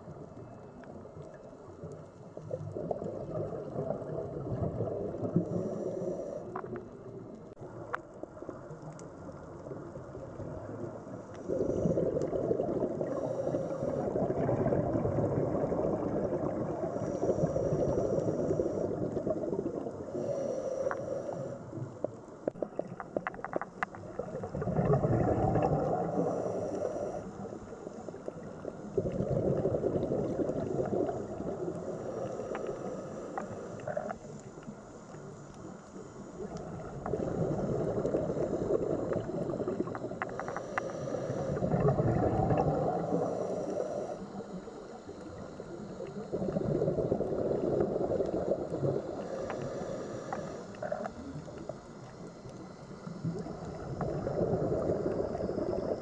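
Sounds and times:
faint clicks: 0:00.0 - 0:03.8, 0:04.6 - 0:14.1, 0:20.7 - 0:24.4, 0:30.0 - 0:46.8, 0:47.7 - 0:55.9
regulator bubbles gurgling: 0:00.0 - 0:56.0.

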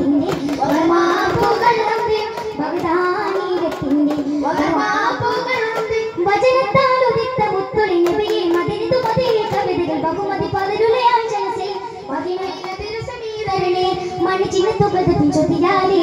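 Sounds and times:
boys' chorus singing in unison: 0:00.0 - 0:05.6
frame drums beating: 0:00.0 - 0:11.0.

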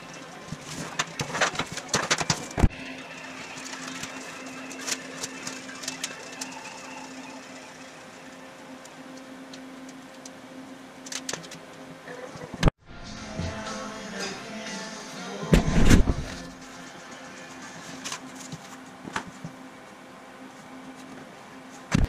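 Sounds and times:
cardboard sheets rustling: 0:00.4 - 0:07.1
low hum: 0:11.8 - 0:22.0.

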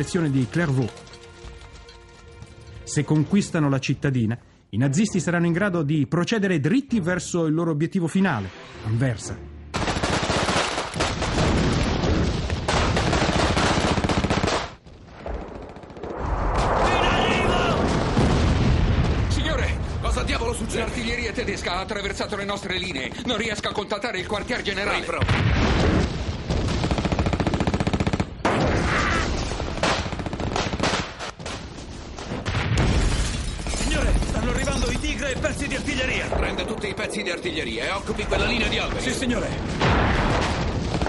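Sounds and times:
rifles and machine guns firing: 0:09.7 - 0:16.2, 0:22.8 - 0:28.8, 0:29.4 - 0:32.6, 0:38.3 - 0:41.0
scattered shots and bangs: 0:09.7 - 0:20.4, 0:22.4 - 0:41.0.

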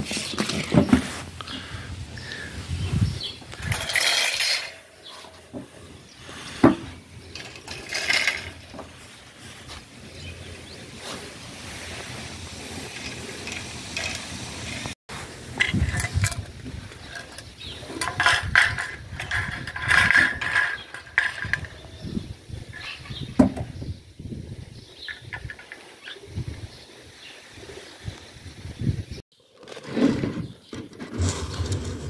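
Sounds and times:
wire grill grates rattling and clinking: 0:03.6 - 0:05.2, 0:07.3 - 0:08.9, 0:12.9 - 0:14.9, 0:15.6 - 0:21.9.

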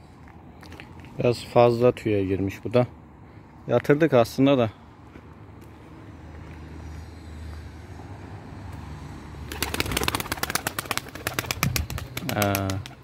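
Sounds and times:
pigeon wings clapping in flight: 0:09.5 - 0:13.0.

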